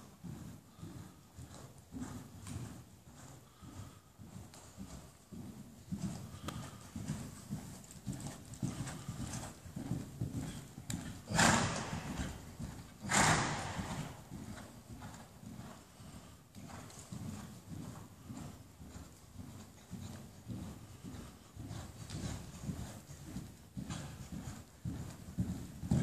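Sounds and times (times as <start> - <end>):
hooves thudding in sand: 0.0 - 26.0
pony blowing: 11.2 - 14.3.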